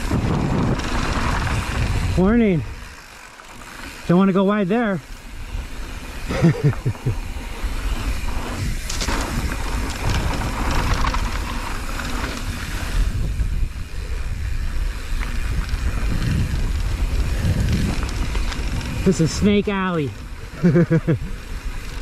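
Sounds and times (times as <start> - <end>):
wind buffeting microphone: 0.0 - 3.0, 5.2 - 22.0
bike tyres knocking on dirt: 8.2 - 13.0.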